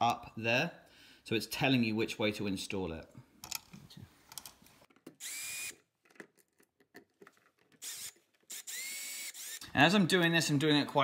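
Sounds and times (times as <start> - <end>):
cordless drill whining: 5.2 - 5.8, 7.8 - 9.8.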